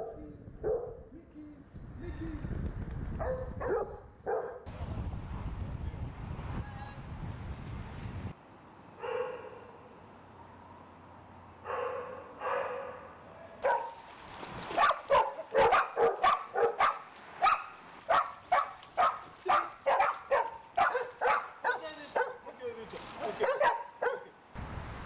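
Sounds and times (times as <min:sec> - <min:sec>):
dogs barking: 0:03.2 - 0:04.7, 0:09.0 - 0:09.8, 0:11.6 - 0:14.0, 0:14.8 - 0:22.6, 0:23.2 - 0:24.4.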